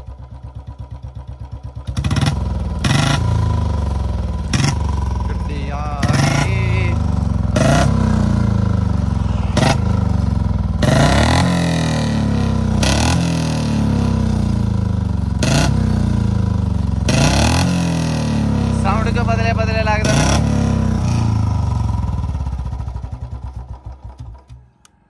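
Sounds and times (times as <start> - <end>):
motorcycle engine idling and revving: 0.0 - 24.9
exhaust bangs: 4.5 - 13.4.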